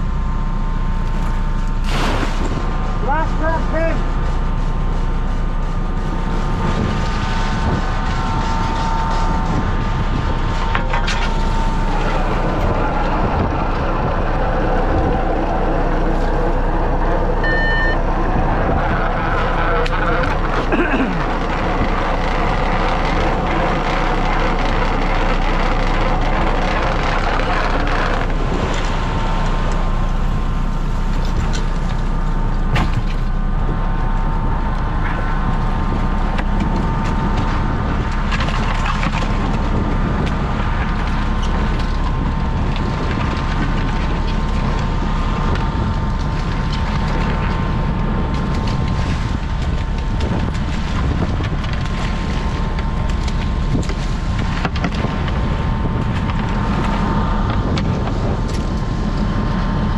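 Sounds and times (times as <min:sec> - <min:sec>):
sea noise: 0:00.0 - 0:23.0
boat engine and hauler whine: 0:00.0 - 0:59.9
wind: 0:00.0 - 0:59.9.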